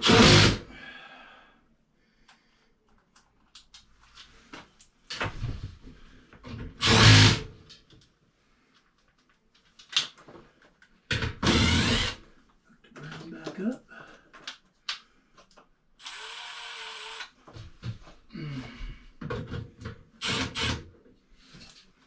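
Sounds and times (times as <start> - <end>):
power drill driving screws: 0.0 - 0.6, 6.8 - 7.5, 11.4 - 12.2, 16.0 - 17.3, 20.2 - 20.8.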